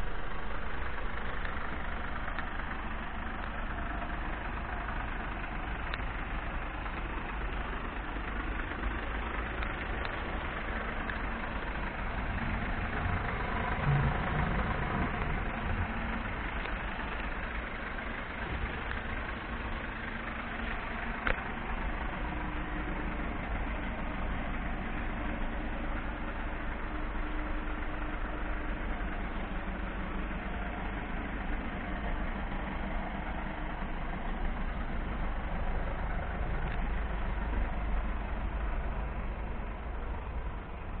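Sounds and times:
diesel engine idling: 0:00.0 - 0:41.0.

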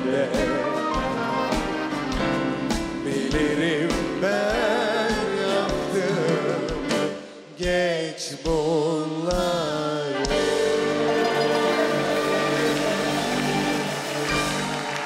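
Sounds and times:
man and woman singing duet: 0:00.0 - 0:01.5, 0:03.0 - 0:10.6
orchestra playing: 0:00.0 - 0:07.2, 0:10.2 - 0:15.0.

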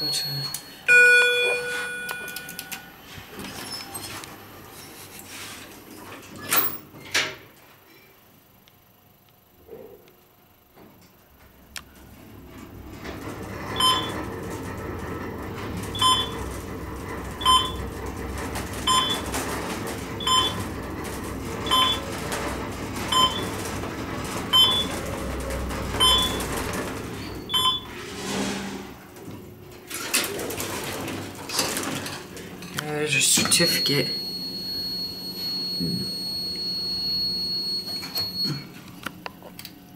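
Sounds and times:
elevator doors moving: 0:00.0 - 0:04.8, 0:11.4 - 0:38.6
elevator click: 0:00.5 - 0:02.9
elevator hum and rumble: 0:10.4 - 0:39.9.

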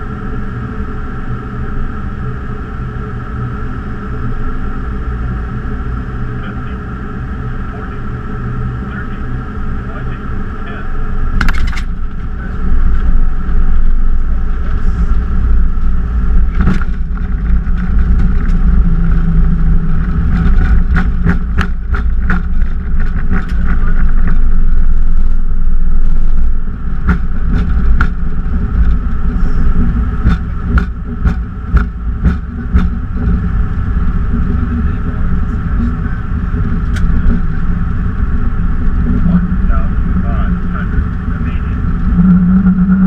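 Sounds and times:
low rumble of wheels and engines: 0:00.0 - 0:43.0
cockpit fittings clicking and rattling: 0:11.4 - 0:12.2
steady high tone: 0:29.1 - 0:43.0.

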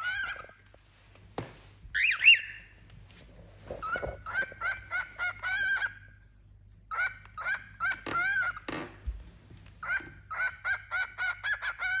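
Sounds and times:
cockatiels chirping: 0:00.0 - 0:00.7, 0:01.9 - 0:02.8, 0:03.7 - 0:06.3, 0:06.9 - 0:08.8, 0:09.8 - 0:12.0.

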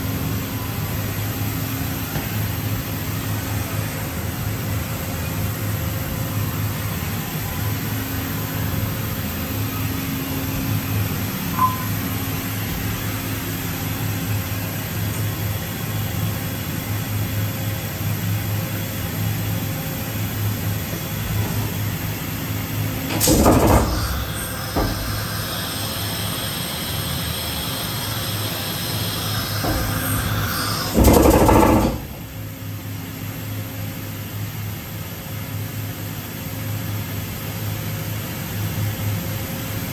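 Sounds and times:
pallet changer whine: 0:00.0 - 0:32.8
machining center humming: 0:00.0 - 0:34.1
mechanical knock: 0:23.1 - 0:25.2, 0:29.6 - 0:32.3.

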